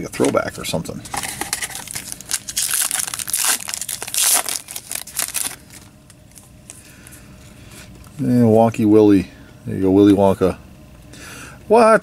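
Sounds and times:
foil wrapper crinkling and tearing: 1.3 - 6.5.

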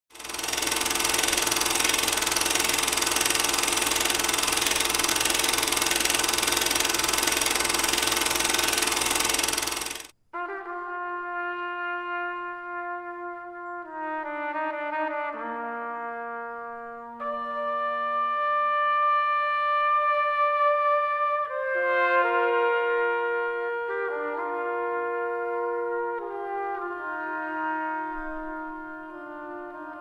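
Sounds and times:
film projector clattering: 0.1 - 10.1
brass chords led by trumpet: 10.3 - 30.0.

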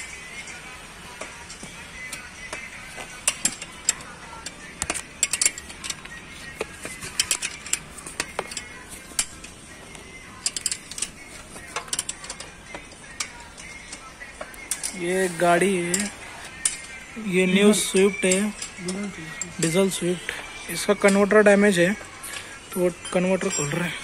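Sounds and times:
spanner clicking on bolts: 3.0 - 9.6, 10.4 - 15.0.

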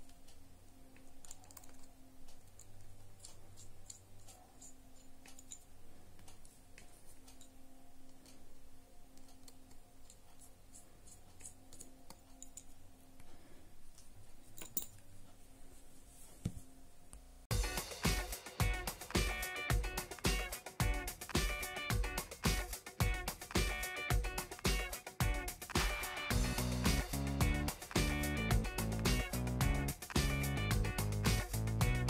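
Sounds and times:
screwdriver clicking and scraping: 0.9 - 8.4, 9.1 - 12.8.

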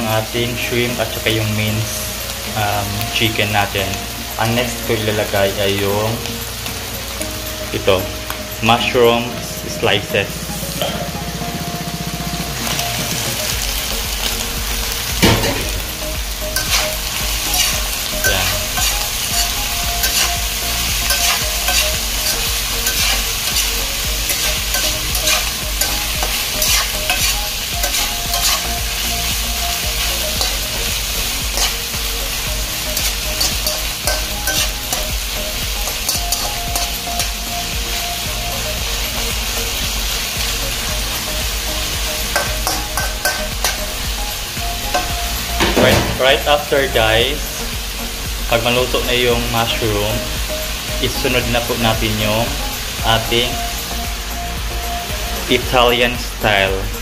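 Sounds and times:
food sizzling in a frying pan: 0.0 - 57.0
spatula scraping a pan: 16.6 - 29.0, 30.0 - 32.0.

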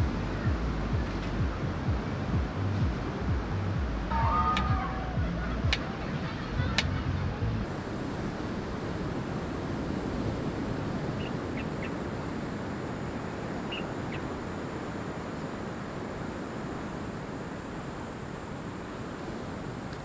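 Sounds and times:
beach surf: 0.0 - 20.0
wind: 0.0 - 20.0
high bird chirps: 4.1 - 5.6.

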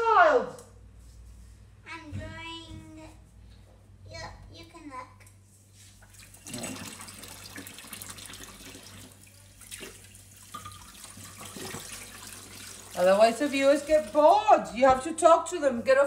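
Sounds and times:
tap running into sink: 10.5 - 12.1.

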